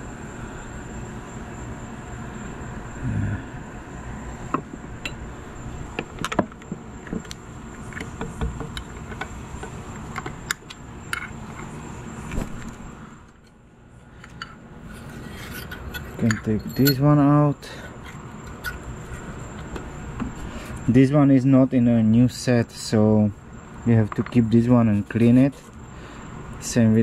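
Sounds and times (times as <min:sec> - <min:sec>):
insect drone: 0:00.0 - 0:27.0.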